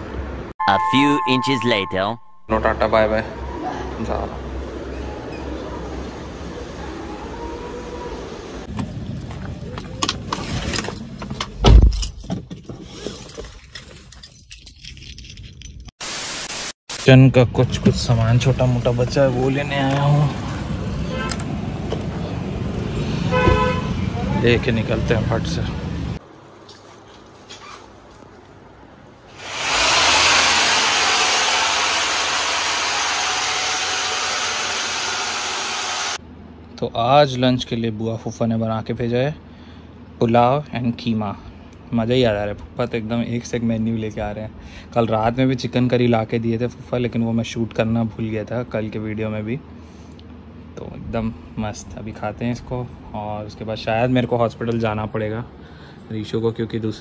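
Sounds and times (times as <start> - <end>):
keys jangling: 11.9 - 15.9
electric machine whirring: 29.4 - 36.2.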